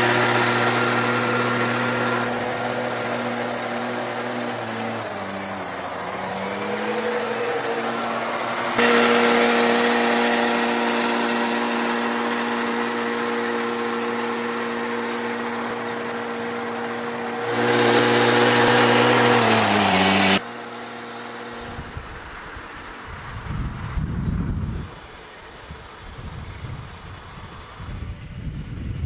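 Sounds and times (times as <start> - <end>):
small engine running: 0.0 - 22.2.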